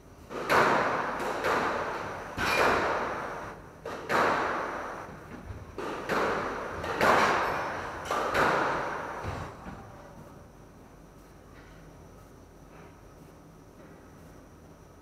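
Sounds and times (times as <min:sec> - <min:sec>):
squash ball hitting walls: 0:00.3 - 0:09.8.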